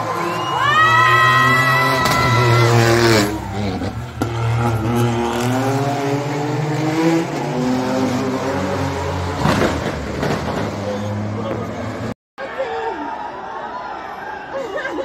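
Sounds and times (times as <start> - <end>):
car engine revving: 1.2 - 12.2
car accelerating through gears: 2.6 - 11.5.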